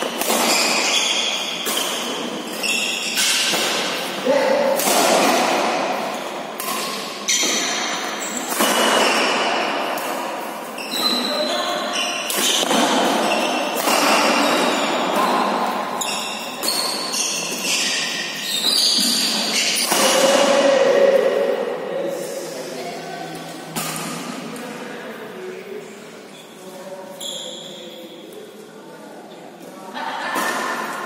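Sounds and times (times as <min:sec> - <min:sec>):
rackets smacking shuttlecock: 0:00.0 - 0:04.0, 0:04.7 - 0:10.3
shoes squeaking on court: 0:00.0 - 0:04.1, 0:06.1 - 0:09.6, 0:10.6 - 0:13.8, 0:14.4 - 0:20.0, 0:26.3 - 0:28.0.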